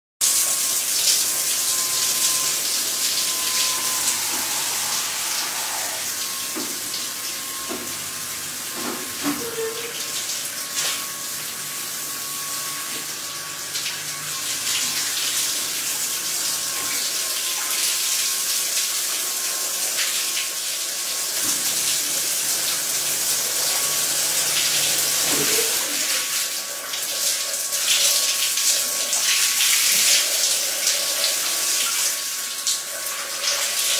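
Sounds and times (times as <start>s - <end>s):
water spraying and hissing: 0.2s - 13.2s, 13.9s - 33.9s
steady thin whine: 0.6s - 8.6s
rotating brush scrubbing: 3.3s - 6.2s.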